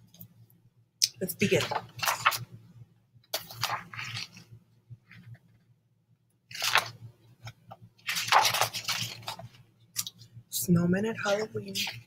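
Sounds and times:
book pages rustling as turned: 0:01.3 - 0:02.6, 0:03.3 - 0:05.7, 0:06.5 - 0:10.3, 0:11.2 - 0:12.0.

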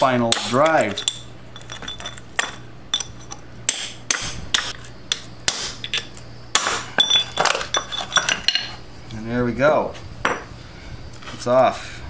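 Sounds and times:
hammer striking chisel on metal: 0:00.0 - 0:08.7.

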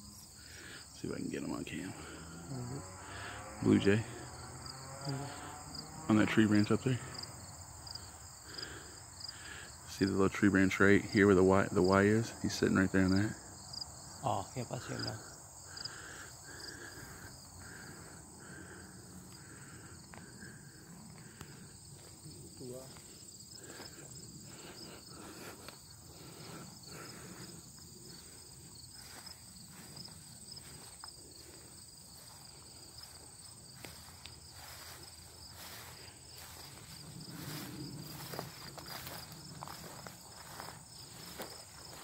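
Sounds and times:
insects trilling: 0:00.0 - 0:42.0
rustles and footsteps in undergrowth: 0:16.7 - 0:42.0.

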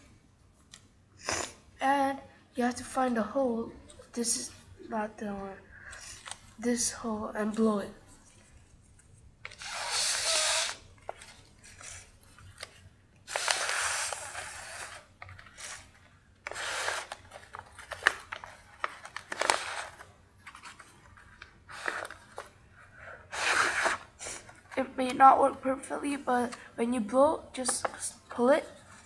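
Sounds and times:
paper crinkling: 0:08.2 - 0:22.6.

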